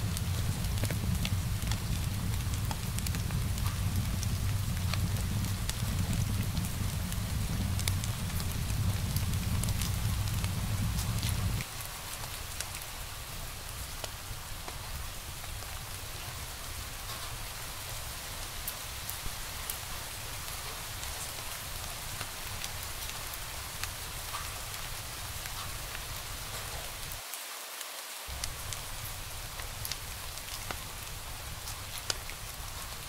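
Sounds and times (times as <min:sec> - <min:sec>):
wood fire crackling: 0:00.0 - 0:27.2, 0:28.3 - 0:33.0.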